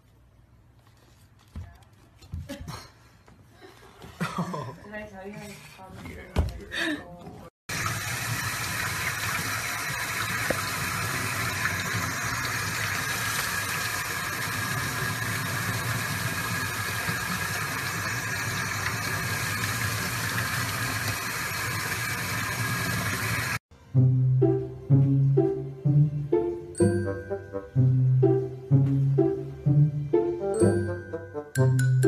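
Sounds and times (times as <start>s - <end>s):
faucet water running: 7.7s - 23.6s.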